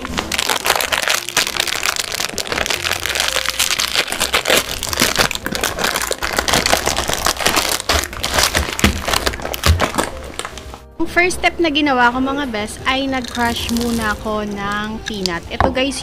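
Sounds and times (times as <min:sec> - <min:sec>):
plastic packaging crinkling: 0:00.0 - 0:10.8, 0:13.2 - 0:14.6.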